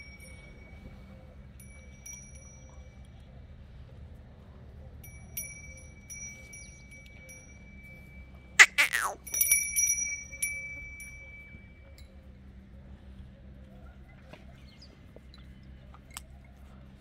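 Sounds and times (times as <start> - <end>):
small metal bell ringing: 1.6 - 3.2, 5.0 - 12.1.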